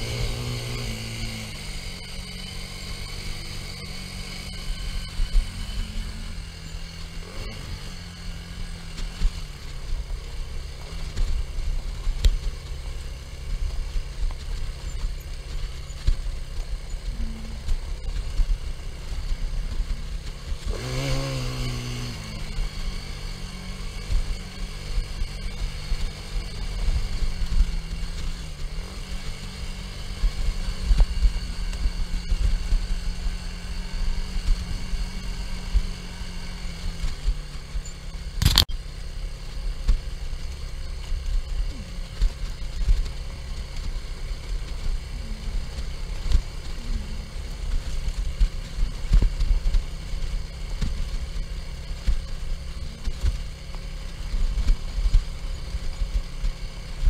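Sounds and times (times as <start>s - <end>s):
quad bike engine running: 0.0s - 57.0s
sharp click: 38.4s - 38.7s.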